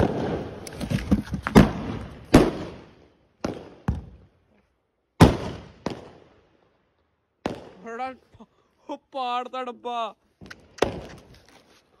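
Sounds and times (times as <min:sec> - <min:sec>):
firecracker bangs: 0:00.0 - 0:00.6, 0:01.4 - 0:04.2, 0:05.2 - 0:06.2.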